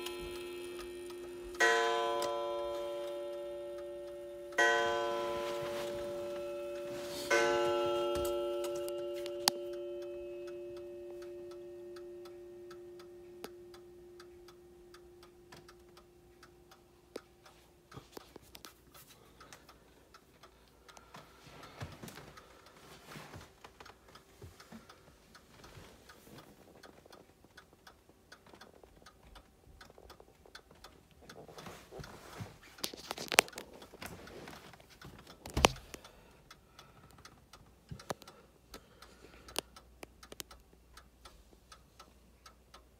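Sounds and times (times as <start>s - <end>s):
wire gong ringing: 0.0s - 14.2s
clock ticking: 0.0s - 42.9s.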